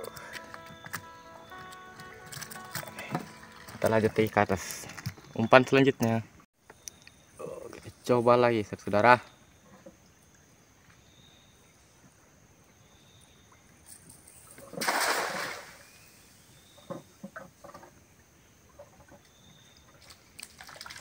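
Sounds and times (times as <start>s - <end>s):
net splashing on water: 14.6s - 15.8s, 20.0s - 21.0s.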